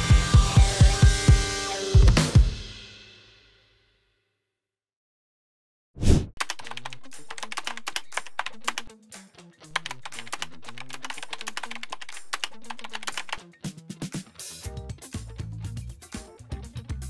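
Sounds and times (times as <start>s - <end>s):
background music with bass line: 0.0s - 2.7s, 7.0s - 17.0s
keyboard typing clicks: 6.4s - 8.9s, 9.8s - 13.4s.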